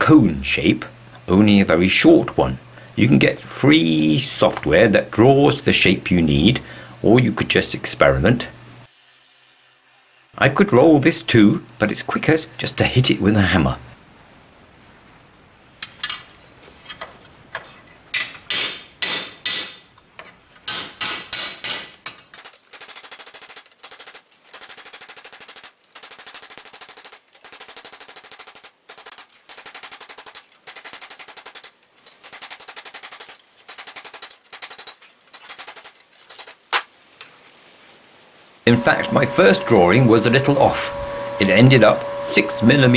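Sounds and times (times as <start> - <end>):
hammer blows on steel plate: 38.7 - 42.9.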